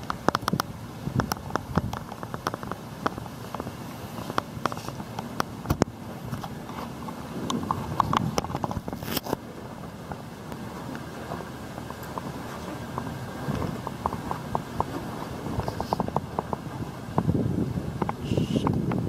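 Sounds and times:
outdoor hiss: 2.2 - 7.5.

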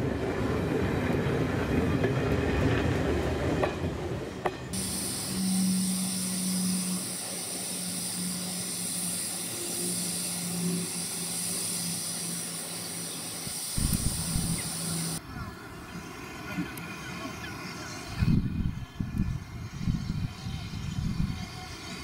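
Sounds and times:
steam locomotive hissing: 4.7 - 22.0
low rumble: 13.8 - 14.6.

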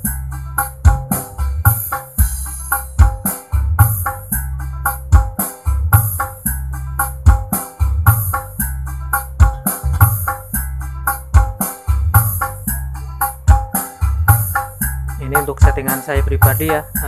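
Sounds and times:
pop song over loudspeaker: 15.2 - 17.0.

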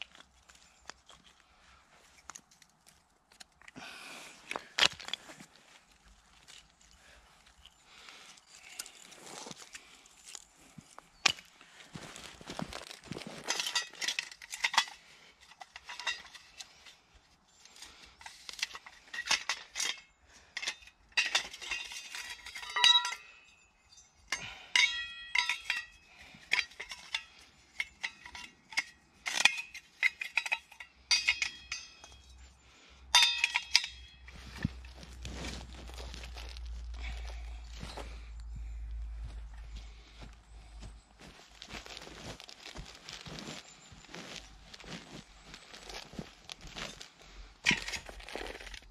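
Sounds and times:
metal cookware clanking: 33.2 - 34.2.

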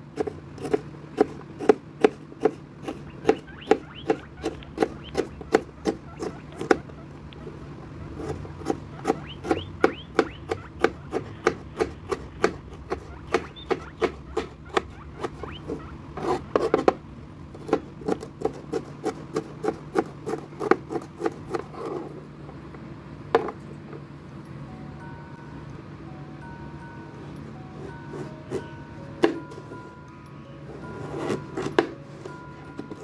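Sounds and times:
knife chopping on plastic board: 0.0 - 7.0, 8.2 - 22.0, 28.2 - 29.5, 31.3 - 32.0.

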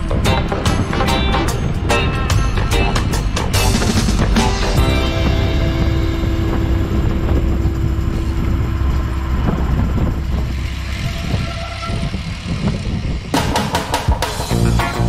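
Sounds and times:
road noise: 0.0 - 15.0
vehicle engine rumbling: 0.0 - 15.0.

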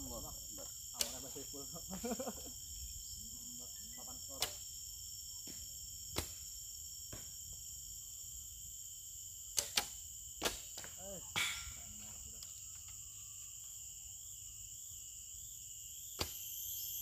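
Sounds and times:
insects chirring: 0.0 - 17.0
bowstring snaps: 9.5 - 10.6.

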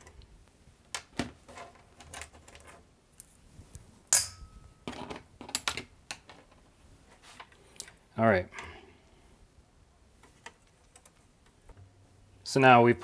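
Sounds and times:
sharp metallic clink: 4.1 - 4.8.

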